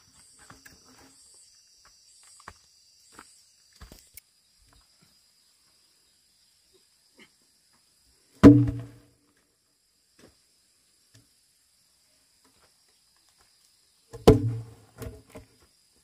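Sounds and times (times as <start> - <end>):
logs dropping onto logs: 8.4 - 9.1, 14.1 - 15.6.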